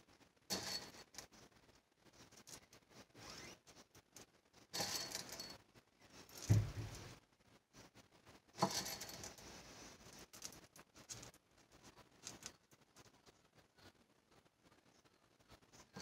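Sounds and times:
beans rattling and rustling: 0.0 - 7.2, 8.5 - 13.4.

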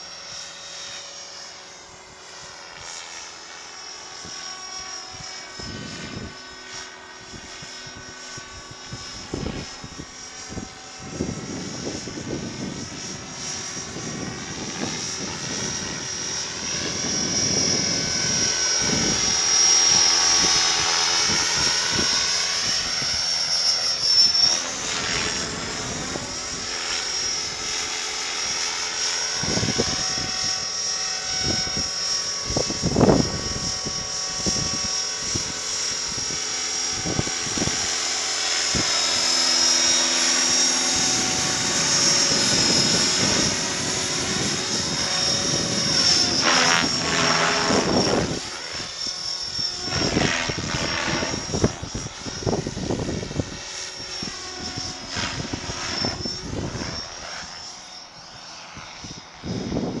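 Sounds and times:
helicopter motor whine: 0.0 - 60.0
rotor blades whooshing: 36.1 - 53.5.

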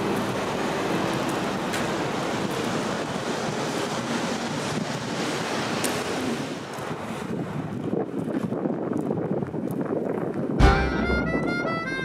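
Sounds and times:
steady outdoor rushing noise: 0.0 - 12.0.

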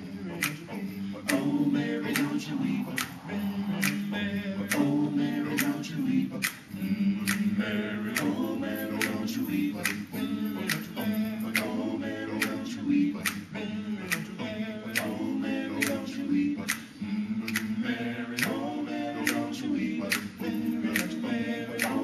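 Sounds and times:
vocal group singing in harmony: 0.0 - 22.0
finger snaps on the beat: 0.4 - 1.5, 2.1 - 3.2, 3.8 - 4.1, 6.4 - 8.4, 9.0 - 11.8, 12.4 - 13.5, 14.1 - 15.2, 16.6 - 17.8, 19.2 - 19.5, 20.1 - 21.2, 21.8 - 22.0.

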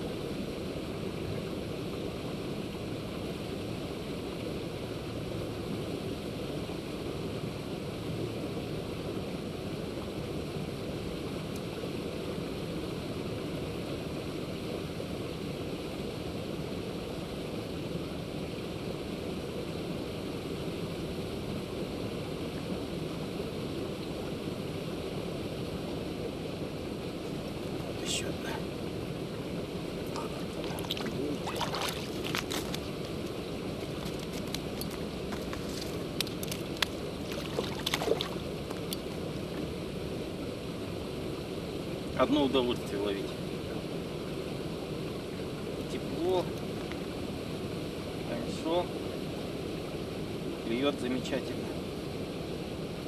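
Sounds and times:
steady rushing noise: 12.1 - 45.2.

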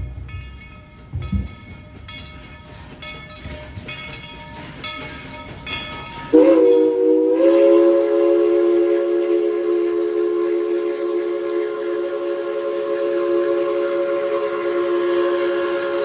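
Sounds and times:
locomotive bell ringing: 0.0 - 7.4
steam chime whistle blowing: 5.4 - 16.0.

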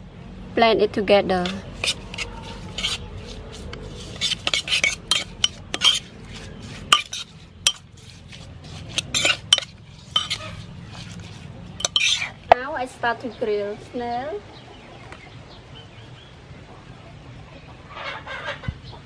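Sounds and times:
metal spoon clinking in pot: 4.2 - 6.1, 6.9 - 7.9, 8.9 - 11.2, 11.8 - 12.4.

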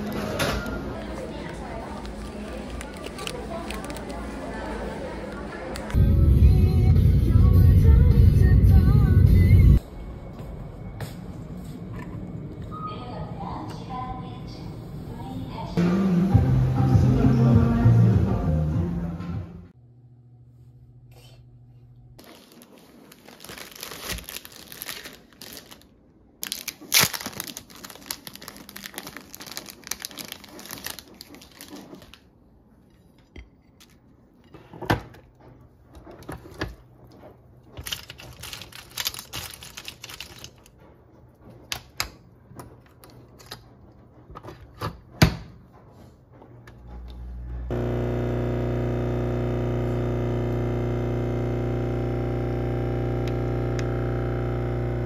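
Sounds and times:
plastic bag crinkling: 1.0 - 4.7, 22.2 - 32.3, 37.8 - 40.8
coffee machine humming: 47.0 - 55.0.

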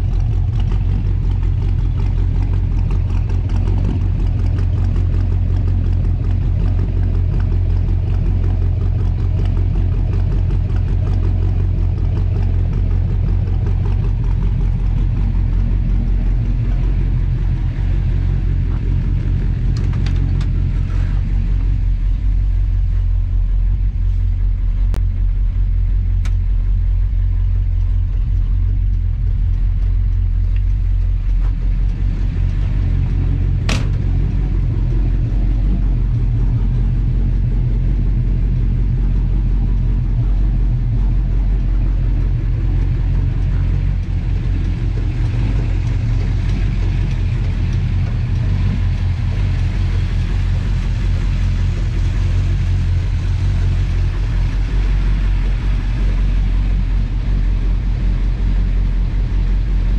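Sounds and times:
car engine idling: 0.0 - 59.9
sharp tick: 26.2 - 26.4.

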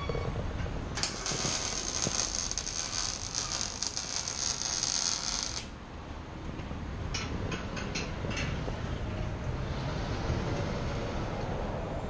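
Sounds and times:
welding arc crackling: 1.0 - 5.8.

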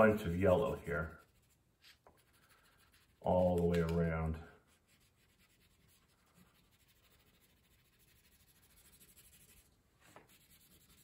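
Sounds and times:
crayon scribbling on paper: 4.8 - 9.7, 10.3 - 11.0.

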